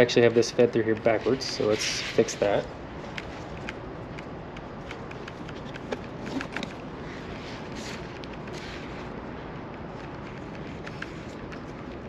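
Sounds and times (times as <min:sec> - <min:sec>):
strap clicks and ticks: 0:00.3 - 0:01.5, 0:03.1 - 0:06.8.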